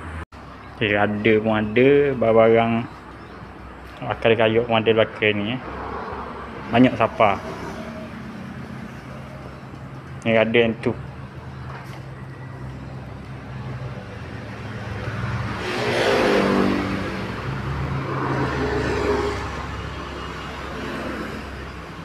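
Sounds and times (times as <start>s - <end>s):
vehicle engine passing by: 5.0s - 22.0s.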